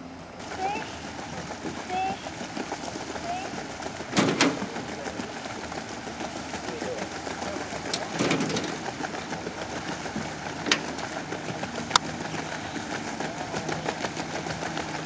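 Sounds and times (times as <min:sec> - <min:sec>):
outboard motor running: 0:00.0 - 0:15.0
water churning and splashing: 0:00.0 - 0:15.0
sharp knocks: 0:04.1 - 0:04.8, 0:07.9 - 0:08.9.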